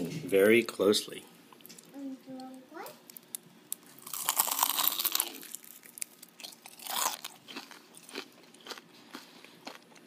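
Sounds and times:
chewing: 4.0 - 10.0
fried chicken crunching: 4.0 - 10.0.

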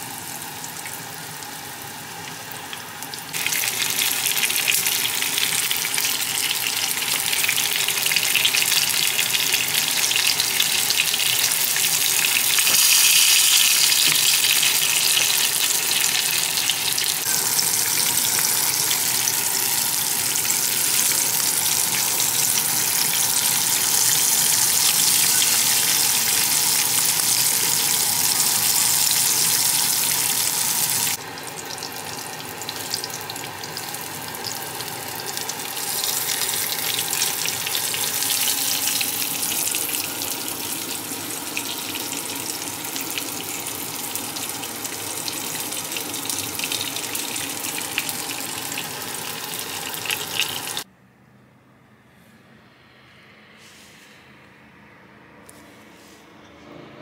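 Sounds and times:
fish sizzling in hot oil: 0.0 - 50.9.

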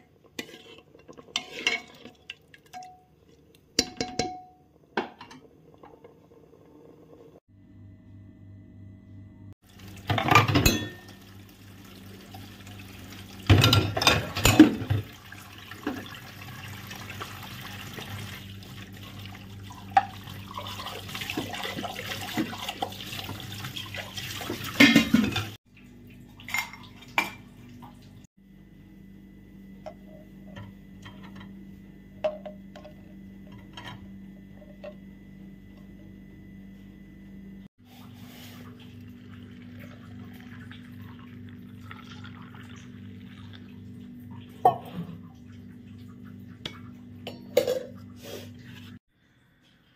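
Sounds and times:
low steady hum: 0.0 - 22.9, 25.0 - 49.9
dishes clattering: 0.5 - 3.0, 10.1 - 11.2, 13.5 - 15.1, 24.5 - 25.6, 46.7 - 48.0
water running from a tap: 9.6 - 28.2, 38.7 - 47.0.

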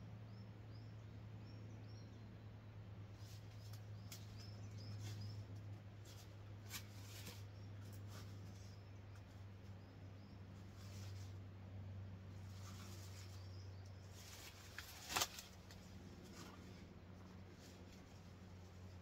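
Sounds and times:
steady low hum: 0.0 - 19.0
small bird chirping: 3.1 - 11.5, 12.3 - 19.0.

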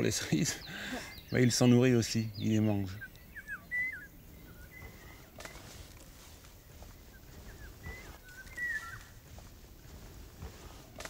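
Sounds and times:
bird singing whistled phrases: 2.8 - 5.7, 7.1 - 9.2.

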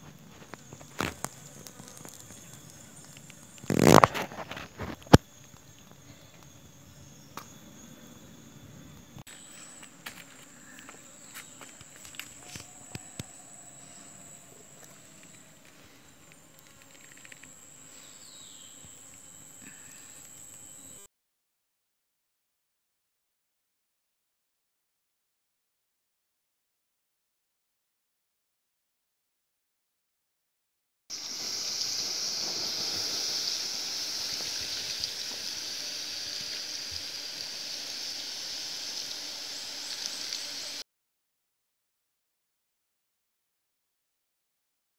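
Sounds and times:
high-pitched insect drone: 0.1 - 21.1, 31.1 - 40.8
water trickling onto embers: 0.2 - 5.9, 31.1 - 40.8
steady high hiss: 31.1 - 40.8.

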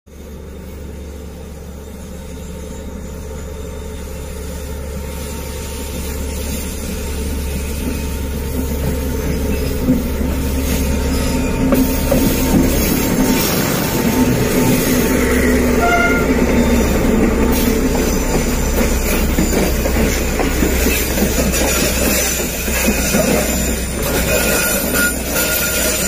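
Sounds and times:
diesel locomotive engine drone: 0.1 - 26.0
train wheels knocking on rails: 7.8 - 26.0.

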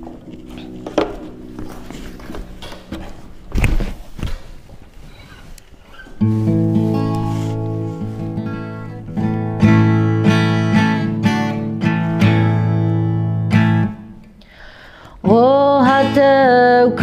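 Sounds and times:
guitar strumming chords: 0.0 - 3.5, 6.2 - 14.3
woman singing: 15.2 - 17.0.

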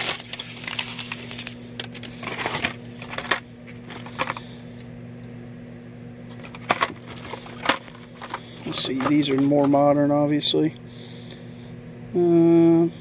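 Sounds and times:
plastic bags crinkling: 0.0 - 4.5, 6.3 - 9.7.

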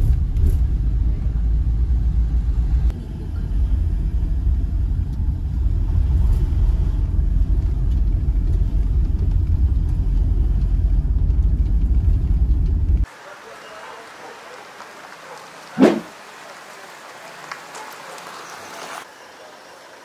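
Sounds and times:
car driving heard from inside: 0.0 - 13.1.

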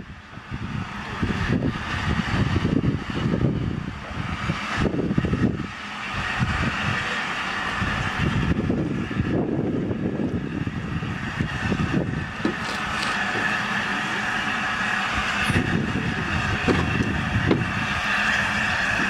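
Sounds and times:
low rumble: 0.0 - 19.0
steam locomotive hissing: 0.0 - 19.0.

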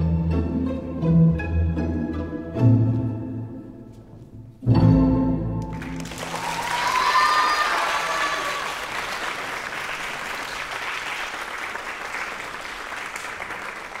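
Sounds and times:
orchestral music: 0.0 - 6.4
audience applauding: 5.7 - 14.0.

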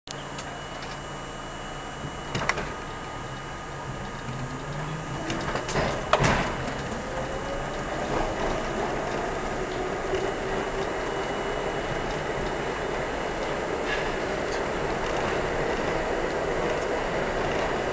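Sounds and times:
subway train accelerating: 0.1 - 17.9
traction motors whining: 0.2 - 17.9.

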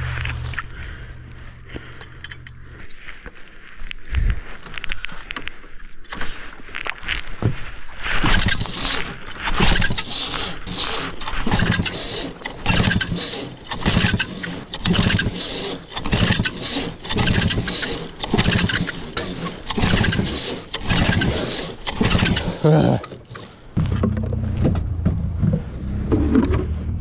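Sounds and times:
engine recoil starter pulls: 8.1 - 27.0.

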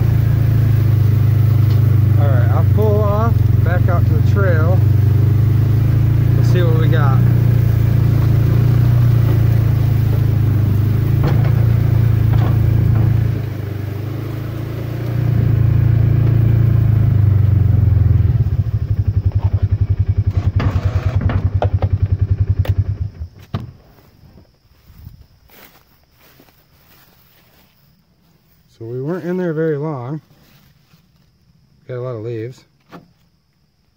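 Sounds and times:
utility vehicle engine running: 0.0 - 23.5
engine knocks and rattles: 0.0 - 23.8.

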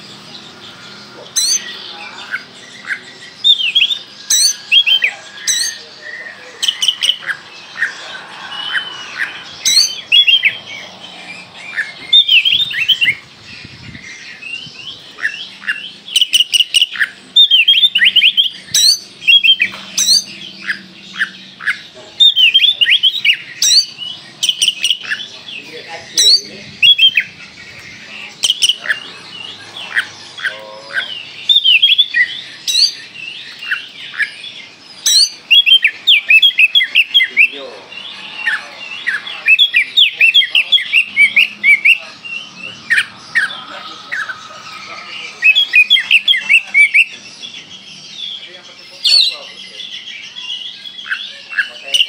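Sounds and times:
sharp piercing bird notes: 0.0 - 52.0
bird singing whistles: 2.9 - 5.8, 6.6 - 10.6, 15.6 - 21.4, 22.2 - 25.2, 26.2 - 27.3, 31.4 - 34.4, 35.0 - 37.6, 38.2 - 47.6.

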